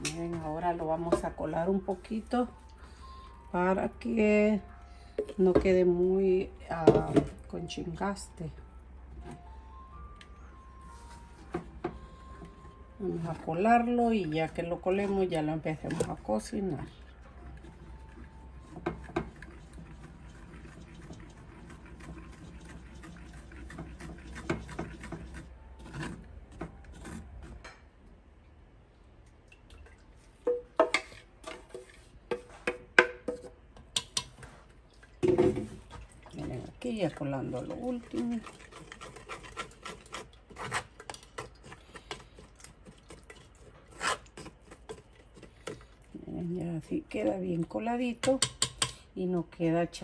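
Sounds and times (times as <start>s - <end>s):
wooden spoon scraping a strainer: 17.6s - 27.6s, 30.9s - 32.7s, 37.3s - 42.4s.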